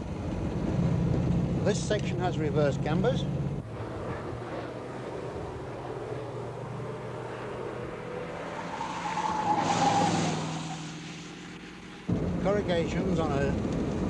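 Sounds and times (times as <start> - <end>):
high engine whine: 0.0 - 14.0
car engine passing by: 3.6 - 12.1.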